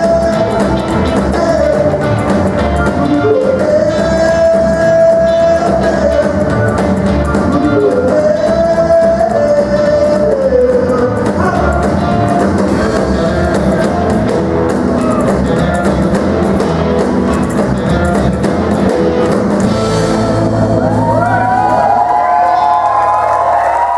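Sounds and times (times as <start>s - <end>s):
male lead vocal: 0.0s - 14.4s
live rock band playing: 0.0s - 23.9s.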